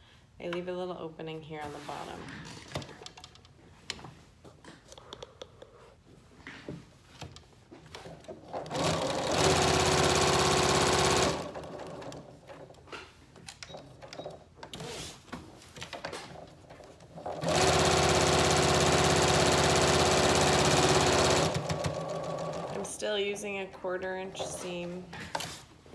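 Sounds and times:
sewing machine stitching: 8.5 - 12.6, 17.0 - 23.3.

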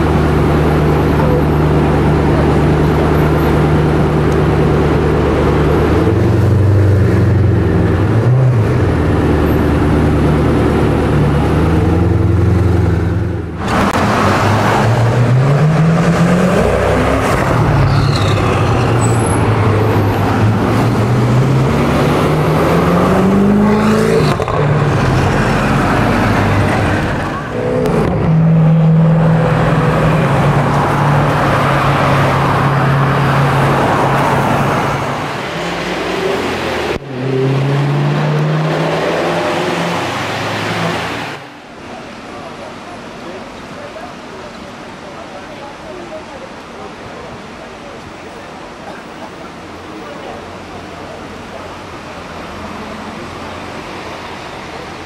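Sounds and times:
car engine revving: 0.0 - 41.4
road traffic: 0.0 - 55.0.

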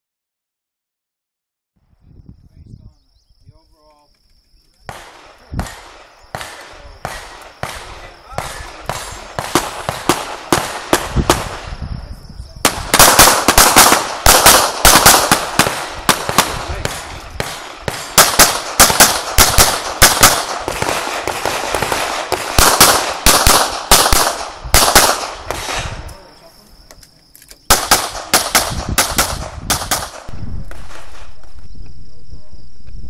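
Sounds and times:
pistol shots: 4.9 - 11.7, 12.6 - 26.1, 27.7 - 31.4.

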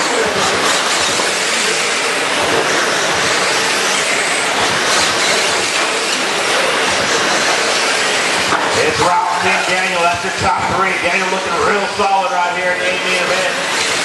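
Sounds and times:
rc truck motors hissing: 0.0 - 10.1, 13.0 - 14.0
tires on dirt: 0.0 - 14.0.

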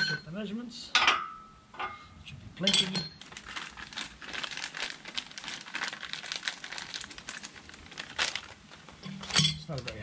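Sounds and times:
plastic bag crinkling: 2.8 - 10.0.

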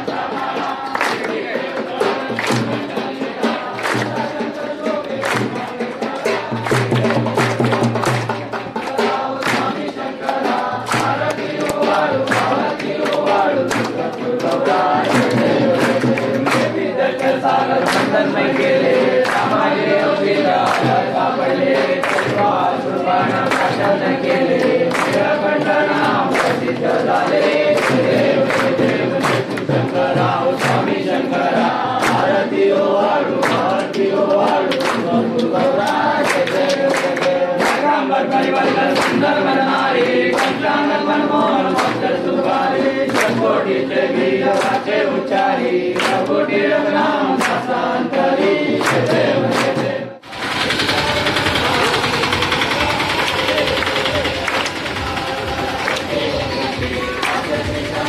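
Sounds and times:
percussive strikes: 0.0 - 45.0
hand-clap beat: 0.0 - 58.0
men singing in unison: 0.0 - 58.0.

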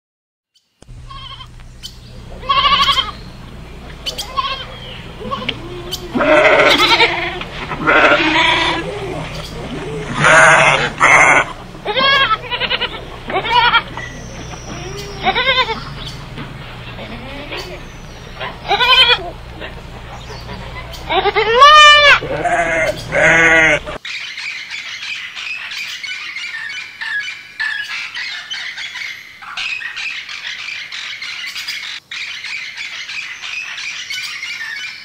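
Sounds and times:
sheep bleating: 1.1 - 1.6, 2.3 - 3.3, 4.1 - 24.0.

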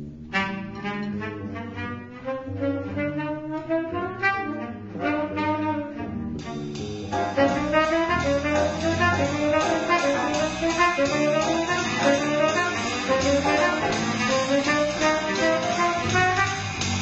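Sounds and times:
saxophone ensemble playing: 0.3 - 17.0
electric bass guitar: 5.8 - 17.0.

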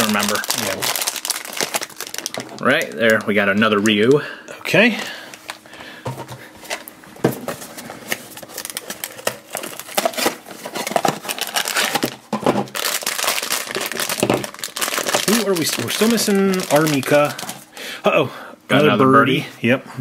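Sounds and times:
foil bag crinkling: 0.0 - 4.1, 7.7 - 17.8.

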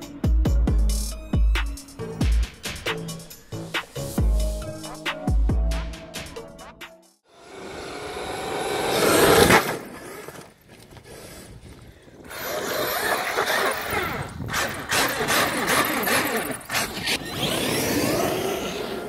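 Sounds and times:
toy car motors whining: 8.0 - 11.5, 12.2 - 19.0.

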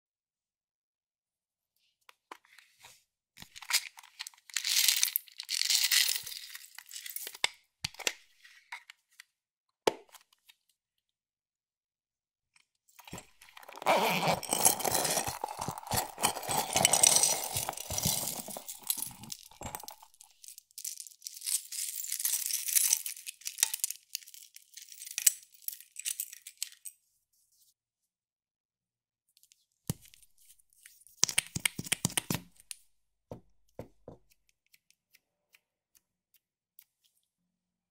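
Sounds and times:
plastic cases rustling: 13.1 - 20.2.

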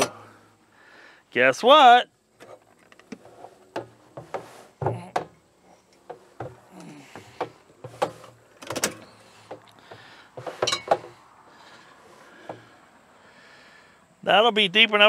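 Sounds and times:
barrel scraping: 2.4 - 12.8
barrel knocking and clattering: 6.0 - 11.2.

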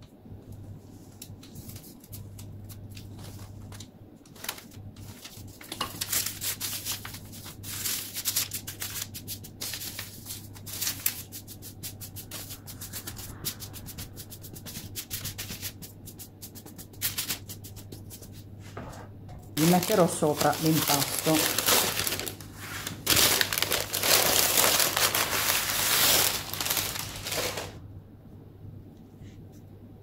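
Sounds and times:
paper rustle: 0.9 - 14.6, 19.6 - 27.8
hands rubbing dough: 5.0 - 18.8.

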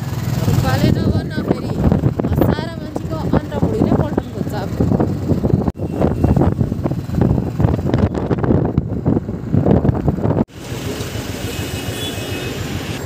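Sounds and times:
motorcycle engine and road noise: 0.0 - 13.0
wind buffeting microphone: 0.2 - 10.5.

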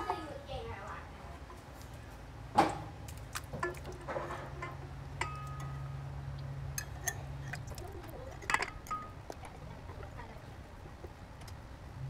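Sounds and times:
low steady hum: 0.0 - 12.0
glass jar clinking against metal bowl: 3.6 - 6.0, 6.8 - 9.6.

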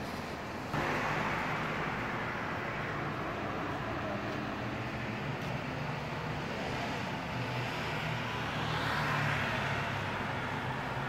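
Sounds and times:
jet engines roaring: 0.8 - 9.3.

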